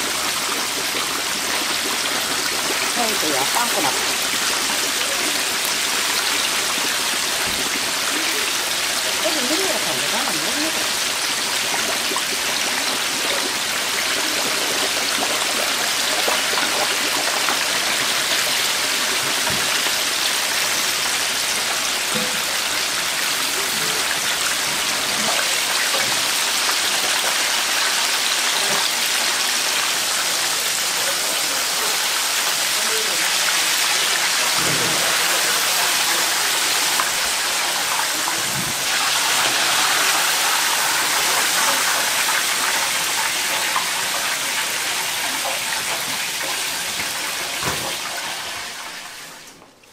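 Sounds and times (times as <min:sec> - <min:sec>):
oil bubbling fiercely: 0:00.0 - 0:49.9.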